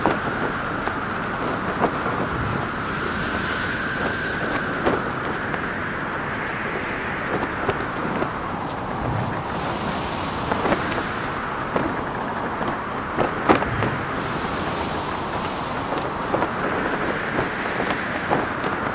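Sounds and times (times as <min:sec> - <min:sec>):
wind rushing in gusts: 0:00.0 - 0:18.9
flag flapping and snapping: 0:11.7 - 0:18.9.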